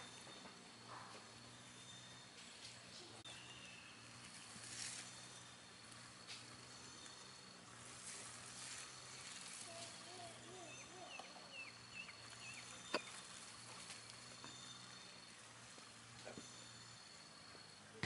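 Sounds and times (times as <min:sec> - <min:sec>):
insect drone: 0:00.0 - 0:18.0
short bending chirping calls: 0:08.7 - 0:17.5.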